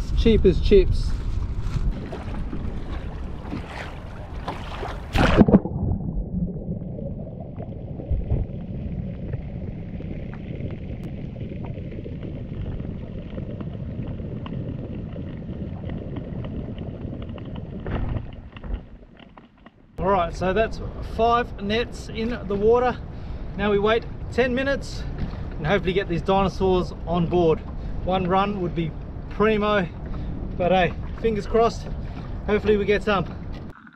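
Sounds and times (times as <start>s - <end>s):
sharp splashes and knocks: 1.2s - 6.5s, 15.7s - 19.8s
low wash of water: 1.3s - 18.8s, 20.2s - 33.7s.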